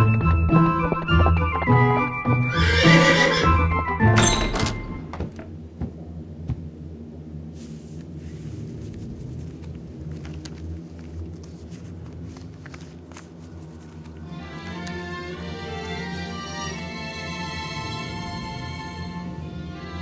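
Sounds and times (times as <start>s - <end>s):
low steady hum: 4.2s - 20.0s
paper rustling and crinkling: 7.6s - 15.0s.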